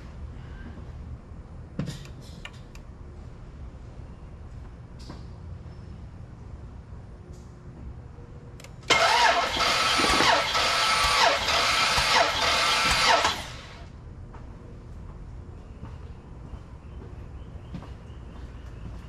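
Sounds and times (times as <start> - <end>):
click: 8.6 - 8.8
starter motor cranking engine: 8.9 - 13.9.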